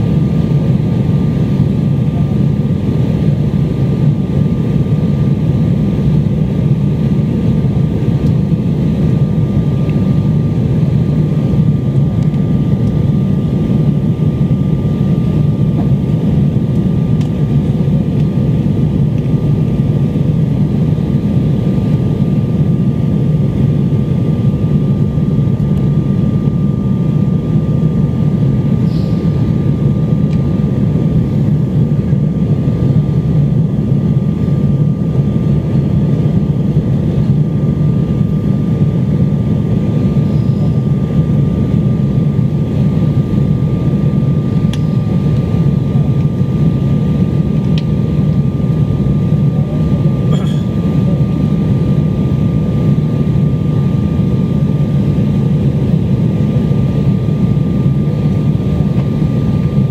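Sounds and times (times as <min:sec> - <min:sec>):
jet engine and airflow rush: 0:00.0 - 0:59.9
thin steady whine: 0:00.0 - 0:59.9.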